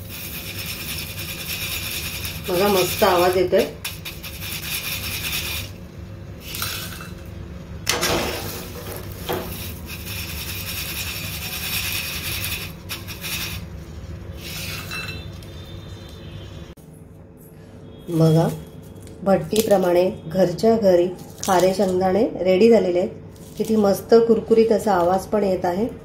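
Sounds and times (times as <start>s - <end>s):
salt sifting through mesh: 0.0s - 5.7s, 9.5s - 14.9s.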